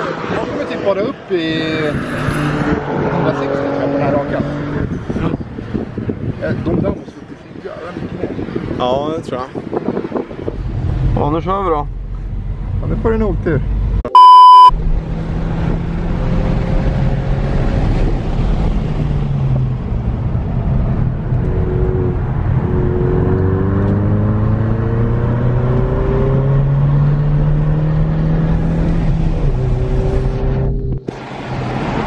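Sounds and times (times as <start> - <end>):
test-tone beep: 14.1 - 14.7.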